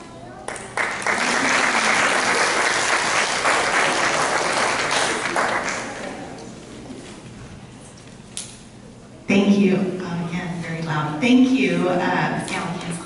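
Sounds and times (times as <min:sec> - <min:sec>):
audience applauding: 0:00.5 - 0:06.3.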